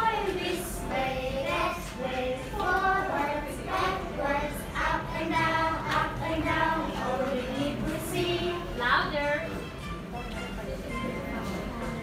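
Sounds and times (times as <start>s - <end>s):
children singing: 0.0s - 8.8s.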